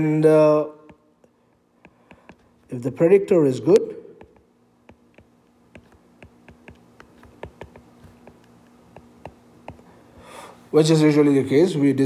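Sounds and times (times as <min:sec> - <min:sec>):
faint steady hum: 0:00.0 - 0:12.0
stylus ticking on tablet screen: 0:04.2 - 0:09.8.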